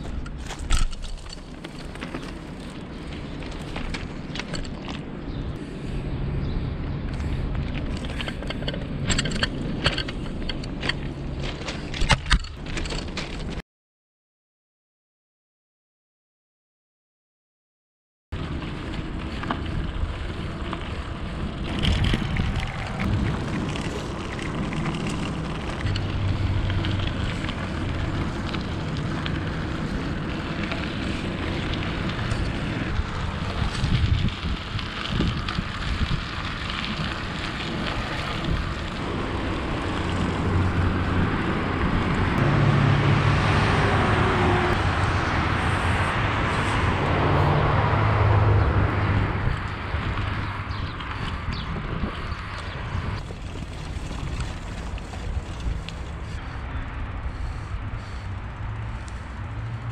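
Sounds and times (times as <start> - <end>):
tyres crunching over loose stones: 0.0 - 5.5, 7.2 - 13.6, 18.4 - 41.4, 49.5 - 56.6
wind rushing over microphone: 18.4 - 59.9.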